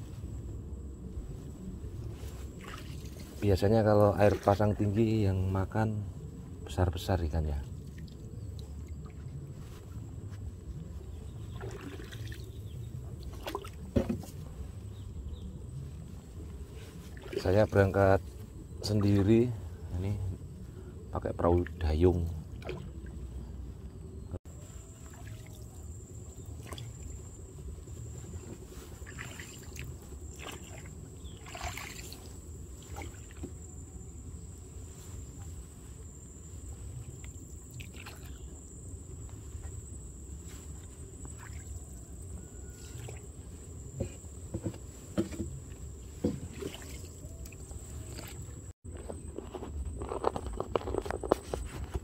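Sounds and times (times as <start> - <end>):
water sloshing with paddle strokes: 2.1 - 3.5, 4.1 - 4.9, 11.1 - 14.8, 16.2 - 19.2, 22.5 - 23.4, 24.7 - 33.8, 34.6 - 38.5, 39.5 - 48.7
knocks on wooden boat: 44.0 - 45.6.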